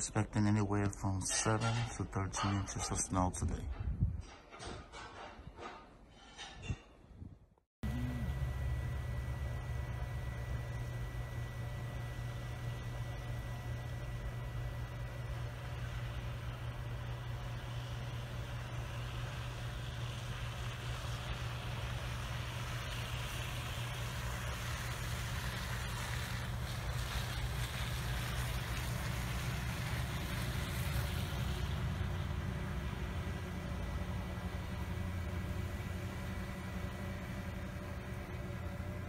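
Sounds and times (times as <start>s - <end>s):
truck driving past on snow: 17.3s - 39.0s.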